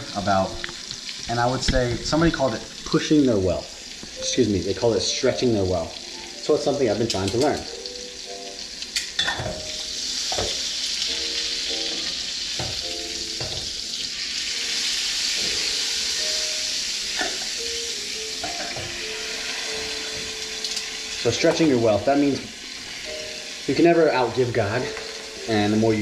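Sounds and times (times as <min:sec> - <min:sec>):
steak sizzling in a frying pan: 0:00.0 - 0:26.0
metal tongs and lid clinking: 0:06.9 - 0:07.8, 0:08.9 - 0:10.5, 0:20.1 - 0:21.0.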